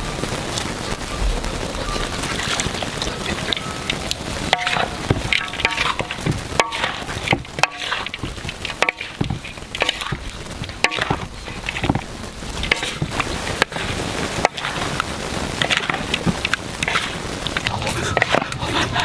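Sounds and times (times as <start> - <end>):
food sizzling: 0.0 - 19.0
spatula scraping and knocking wok: 2.0 - 19.0
wok ringing: 3.2 - 12.0.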